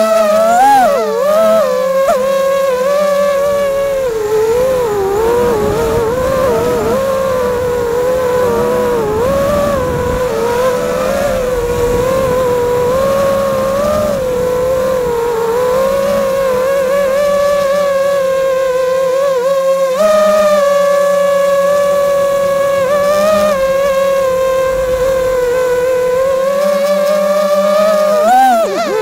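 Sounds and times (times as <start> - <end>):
drone motors and propellers whining: 0.0 - 29.0
wind noise on microphone: 0.0 - 29.0.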